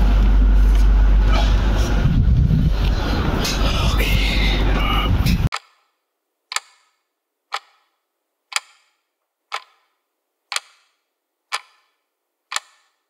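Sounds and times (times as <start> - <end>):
clock ticking: 5.5 - 13.0.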